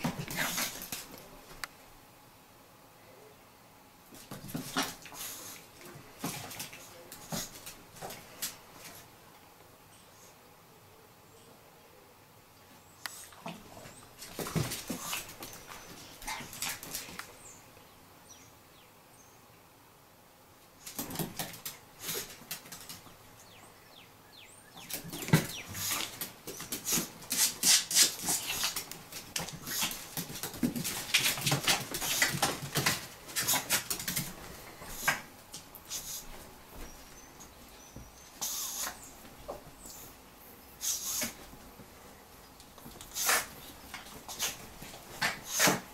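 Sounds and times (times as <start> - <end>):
claws scratching on hardwood floor: 25.5 - 35.3.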